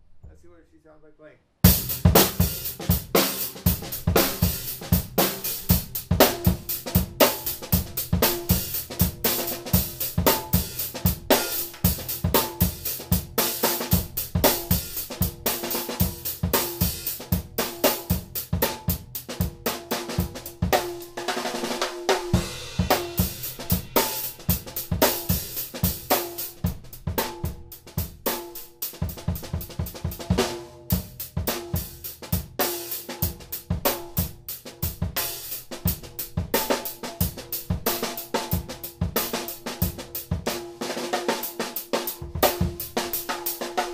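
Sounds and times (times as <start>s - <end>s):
drum kit groove: 1.6s - 43.9s.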